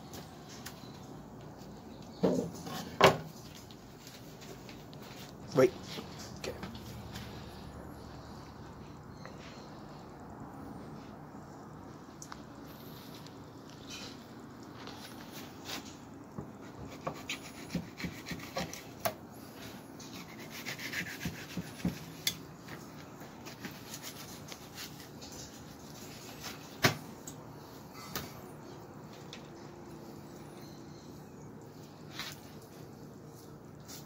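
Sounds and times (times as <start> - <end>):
knife scraping fish skin: 16.9 - 19.0, 20.0 - 22.4, 23.4 - 25.8.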